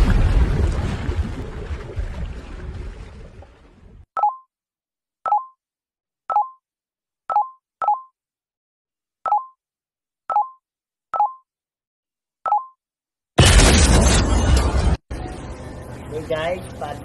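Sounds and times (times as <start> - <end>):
short electronic beeps: 4.2 - 4.5, 5.3 - 5.6, 6.3 - 6.6, 7.3 - 8.1, 9.3 - 9.6, 10.3 - 10.6, 11.2 - 11.4, 12.5 - 12.8.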